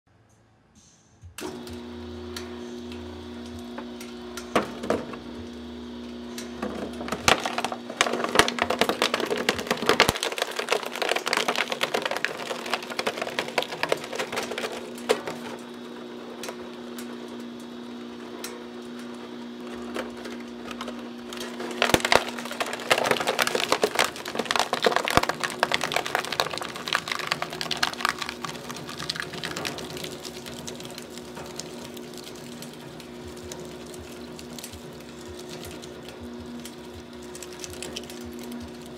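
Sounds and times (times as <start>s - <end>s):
shredder motor humming: 1.4s - 38.9s
plastic cracking and crunching: 6.6s - 17.8s, 18.9s - 38.9s.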